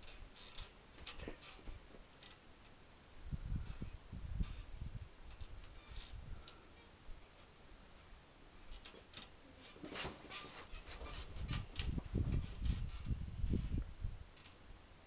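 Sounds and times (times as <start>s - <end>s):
microphone rumble: 11.1s - 14.3s.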